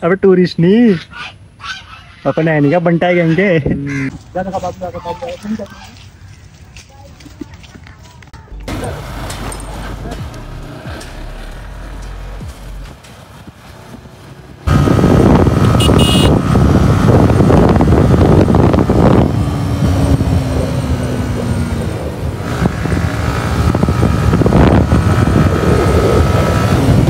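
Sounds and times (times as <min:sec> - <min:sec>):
wind rushing on microphone: 0:12.9 - 0:27.0
motorcycle engine running: 0:14.6 - 0:27.0.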